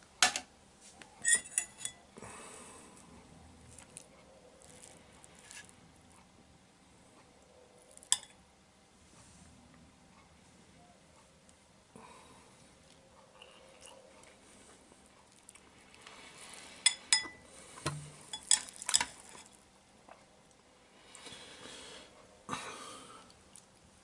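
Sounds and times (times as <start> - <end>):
metal fork clinking on tray: 1.2 - 2.0, 16.9 - 17.4.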